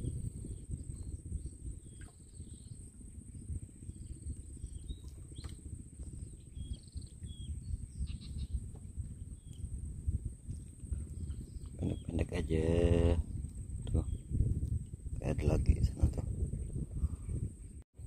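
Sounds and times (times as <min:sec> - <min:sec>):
insect drone: 0:00.0 - 0:17.8
low uneven rumble: 0:00.0 - 0:17.8
bird chirps: 0:06.2 - 0:08.6, 0:11.2 - 0:12.3.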